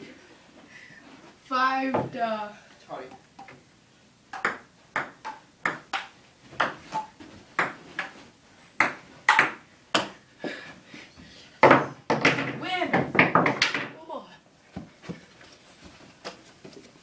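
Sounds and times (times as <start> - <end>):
table tennis ball clicking: 4.3 - 8.1.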